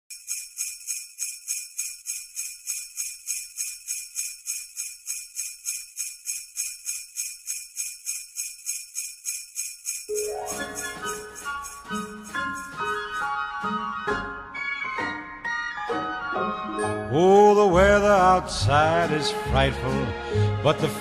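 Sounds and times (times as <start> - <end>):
sleigh bells jingling: 0.1 - 13.4
pitched music: 10.1 - 13.7.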